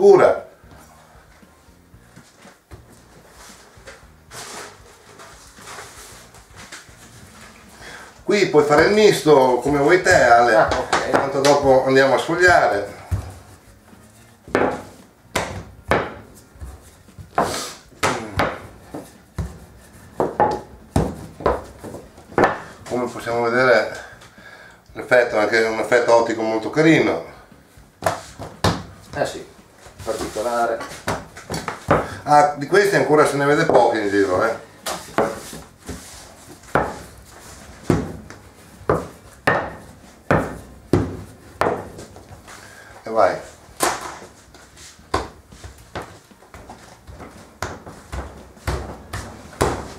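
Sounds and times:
rolling pin rolling dough: 0:02.2 - 0:24.1, 0:32.8 - 0:42.6, 0:43.2 - 0:49.9.

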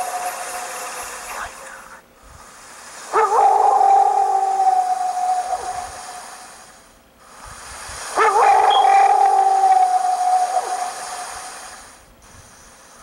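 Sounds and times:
long howl: 0:00.0 - 0:01.0, 0:03.1 - 0:06.4, 0:08.2 - 0:11.4.

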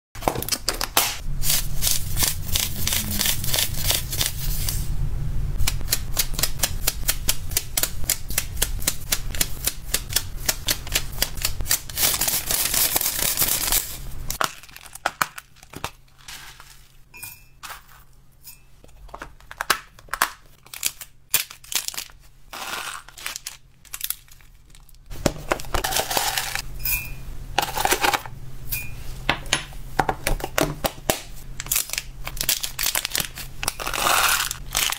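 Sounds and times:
plastic crinkling: 0:11.9 - 0:17.0, 0:19.4 - 0:26.6, 0:31.6 - 0:34.9
pellets rattling in plastic tub: 0:25.7 - 0:26.6.

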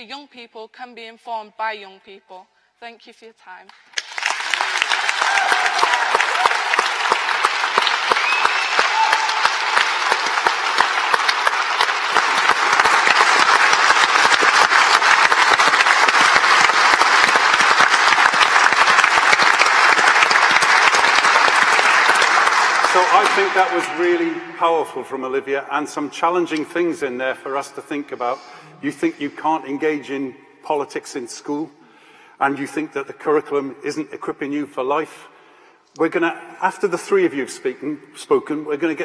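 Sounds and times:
audience applauding: 0:03.8 - 0:24.8.

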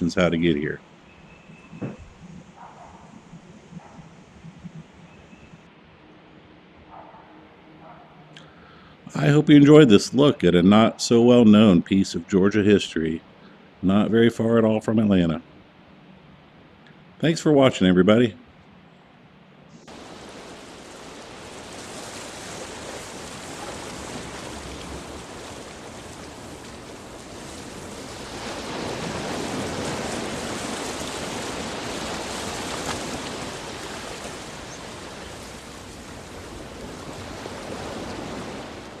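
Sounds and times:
waves breaking: 0:00.0 - 0:01.0, 0:19.7 - 0:39.0.

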